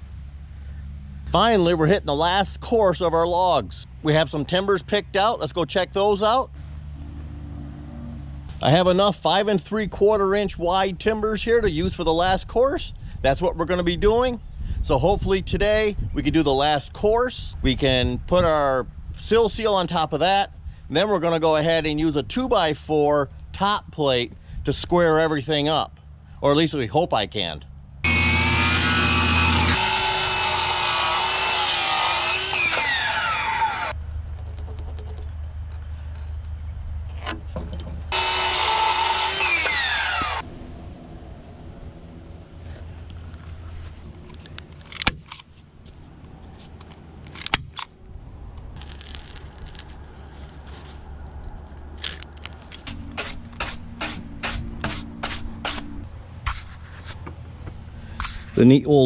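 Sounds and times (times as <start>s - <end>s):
circular saw cutting timber: 28.0s - 34.0s, 38.1s - 40.5s, 52.9s - 57.2s.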